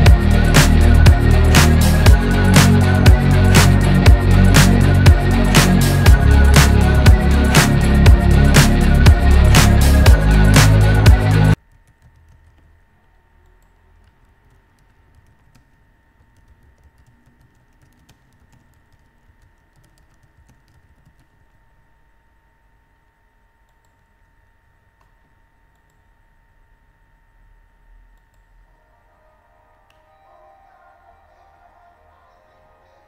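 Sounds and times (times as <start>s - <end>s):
computer keyboard typing: 0.0s - 12.8s, 13.5s - 21.6s
faint steady whine: 15.5s - 33.0s.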